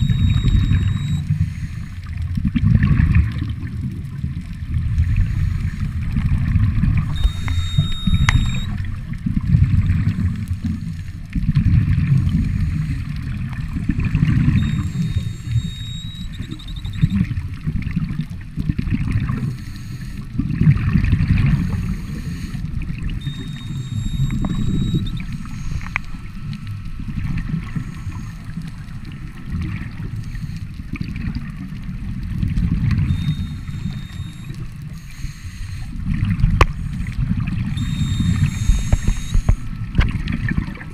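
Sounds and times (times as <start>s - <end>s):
regulator inhalation tone: 0.0s - 2.2s, 6.9s - 8.9s, 9.9s - 11.2s, 12.4s - 17.3s, 19.2s - 20.4s, 21.4s - 30.9s, 33.0s - 40.0s
low rumbling exhaled bubbles: 0.0s - 35.0s, 35.8s - 40.9s.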